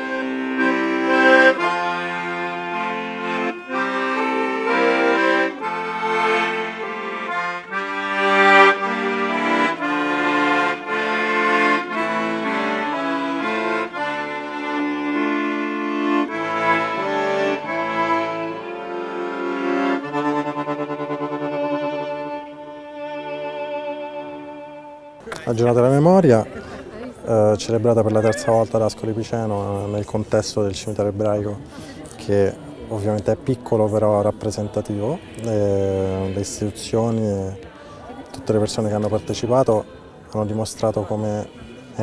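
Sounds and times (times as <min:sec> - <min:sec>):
accordion playing slow tune: 0:00.0 - 0:25.3, 0:27.7 - 0:30.2.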